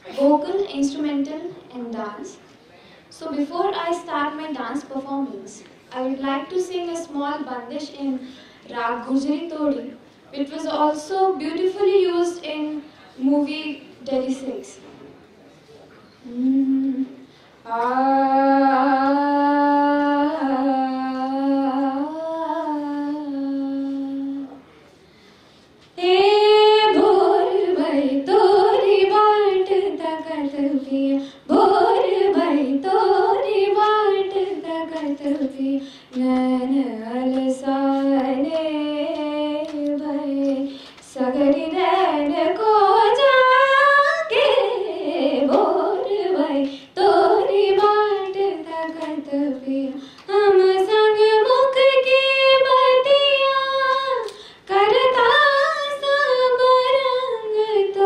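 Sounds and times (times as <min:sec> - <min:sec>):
woman singing classical vocals: 0:16.3 - 0:24.5, 0:26.0 - 0:58.0.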